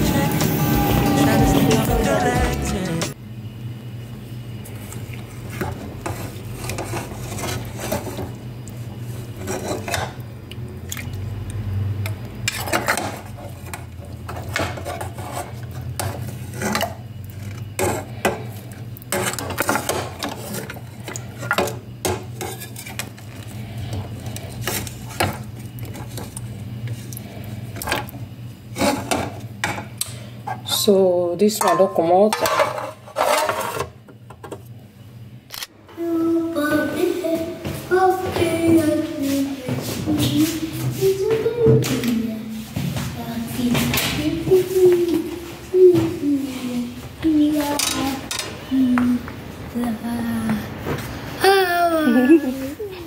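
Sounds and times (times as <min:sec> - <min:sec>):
steady low hum: 0:00.0 - 0:53.0
metal ladle scraping pot: 0:09.3 - 0:10.2, 0:12.4 - 0:18.4, 0:19.1 - 0:23.3, 0:28.7 - 0:29.8, 0:31.6 - 0:34.0.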